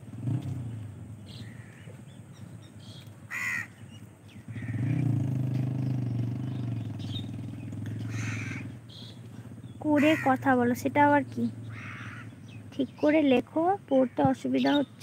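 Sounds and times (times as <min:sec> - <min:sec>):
crow cawing: 0:01.4 - 0:02.0, 0:03.3 - 0:03.8, 0:04.5 - 0:05.0, 0:07.9 - 0:08.7, 0:09.9 - 0:10.5, 0:11.6 - 0:12.5, 0:13.9 - 0:14.3.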